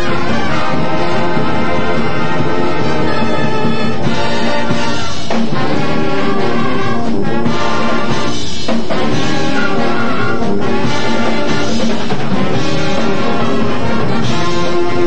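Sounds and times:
brass chords: 0.0s - 15.0s
school band playing: 0.0s - 15.0s.

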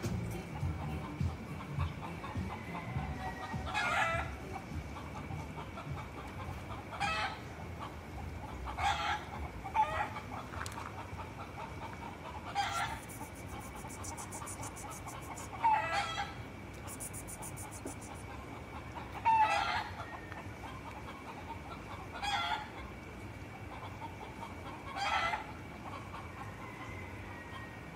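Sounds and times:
chickens calling: 11.0s - 22.8s
fast faint high ticking: 12.8s - 15.6s, 16.8s - 18.2s.

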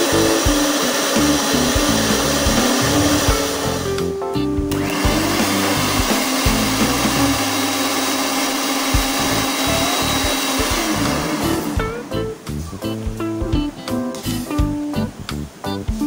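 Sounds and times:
stand mixer whipping cream: 0.0s - 3.8s, 4.7s - 11.8s
background music: 0.0s - 16.0s.

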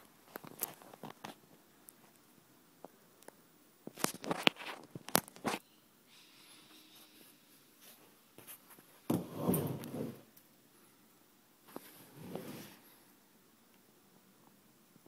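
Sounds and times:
rustling scrape: 7.8s - 10.2s, 11.7s - 12.9s.

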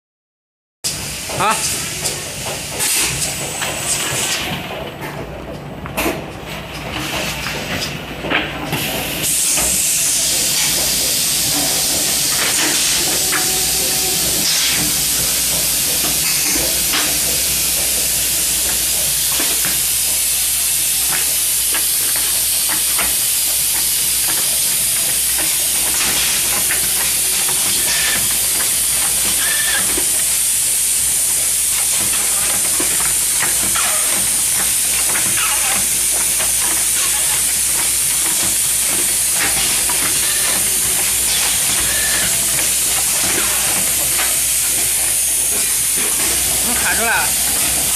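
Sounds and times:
machine hissing and humming: 0.9s - 47.9s.

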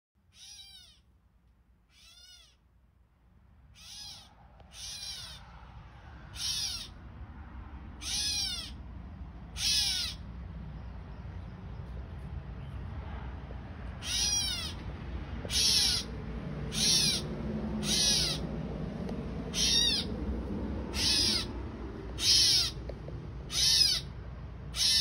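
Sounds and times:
animal drawn-out calls: 0.3s - 1.0s, 1.9s - 2.6s, 3.7s - 7.0s, 8.0s - 8.8s, 9.5s - 10.2s, 14.0s - 14.8s, 15.5s - 18.6s, 19.4s - 20.2s, 20.8s - 22.9s, 23.5s - 25.0s
low rumble: 3.1s - 24.8s.

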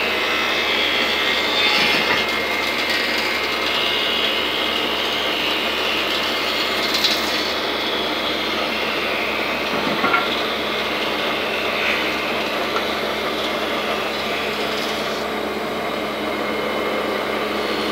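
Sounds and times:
woodworking saw running: 0.0s - 17.9s.

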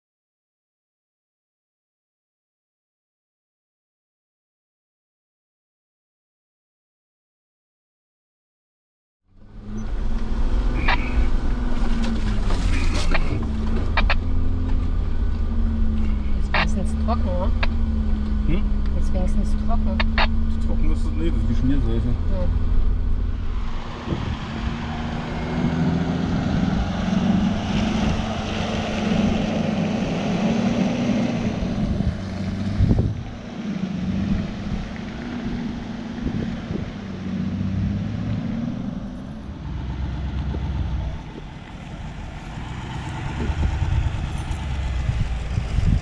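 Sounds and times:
off-road vehicle engines: 9.3s - 46.0s.

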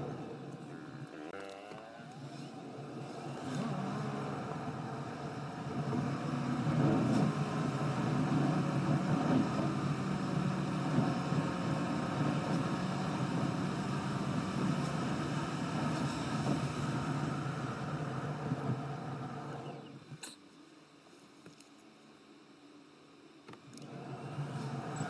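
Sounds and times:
car engine and tyre noise: 2.2s - 20.0s, 23.8s - 25.0s.

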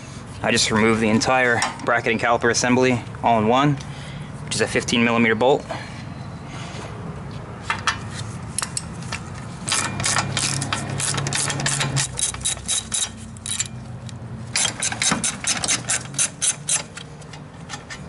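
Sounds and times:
socket ratchet clicking: 9.7s - 17.5s.

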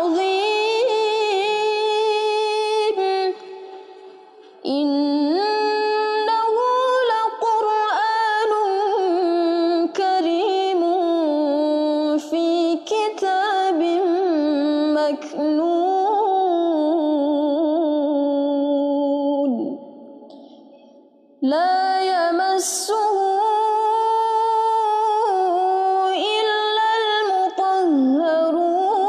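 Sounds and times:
breath: 3.6s - 4.5s, 20.3s - 21.2s.

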